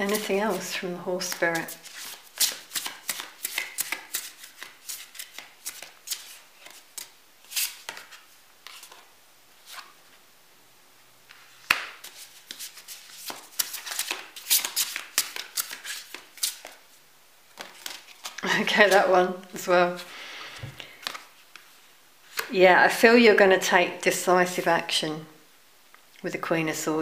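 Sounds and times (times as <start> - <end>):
cards shuffled by hand: 0.0 - 10.1, 11.3 - 16.8, 17.5 - 19.1, 20.6 - 22.5.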